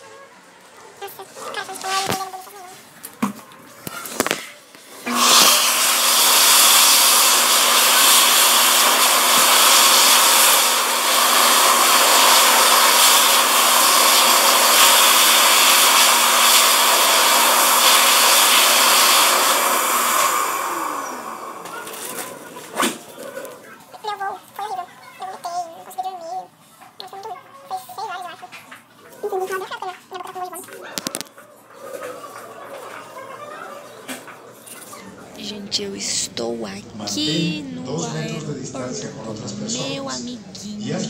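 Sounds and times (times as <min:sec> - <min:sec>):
electric hand dryer humming: 0:04.8 - 0:23.1.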